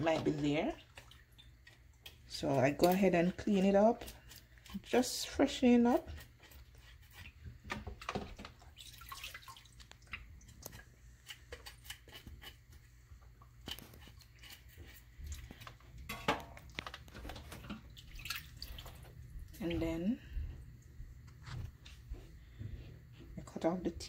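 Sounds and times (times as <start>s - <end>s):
water dripping and splashing: 0.0s - 4.9s, 7.1s - 12.1s, 16.8s - 19.9s
knife scraping fish scales: 6.0s - 7.4s, 11.2s - 12.7s, 13.6s - 15.6s.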